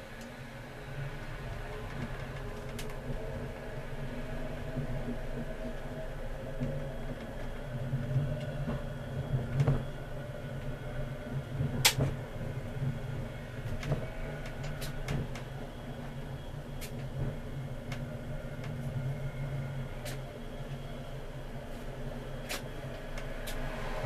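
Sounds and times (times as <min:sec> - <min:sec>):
tram drive hum: 0:00.0 - 0:24.0.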